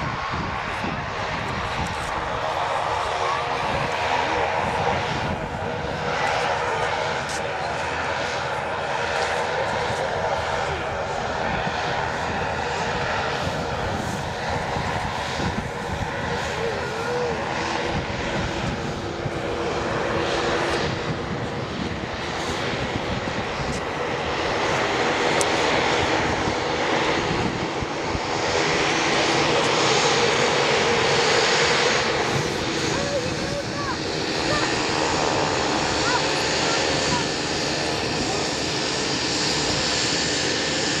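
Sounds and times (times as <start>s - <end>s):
turboprop engines whining: 0.0s - 41.0s.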